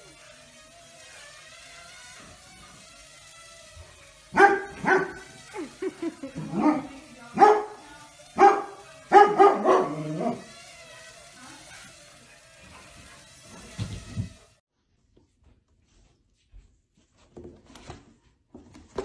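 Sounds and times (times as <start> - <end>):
dog barking: 4.3 - 5.3, 6.6 - 7.8, 8.4 - 10.4.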